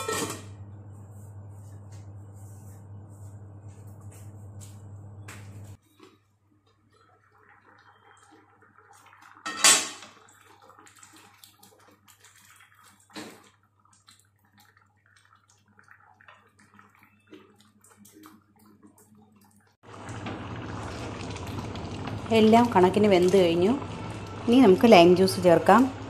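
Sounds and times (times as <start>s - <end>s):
pot lid clattering: 0.0s - 0.5s.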